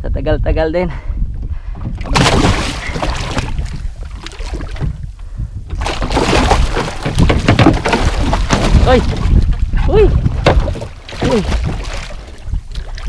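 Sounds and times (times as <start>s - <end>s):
wind on microphone: 0.0s - 13.0s
water splashing against boat: 1.8s - 5.1s, 5.7s - 13.0s.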